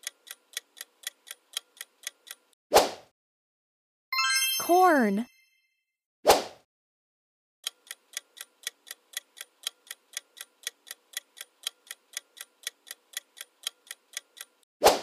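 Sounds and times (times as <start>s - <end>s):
clock-like timer ticking: 0.0s - 2.6s, 7.6s - 14.7s.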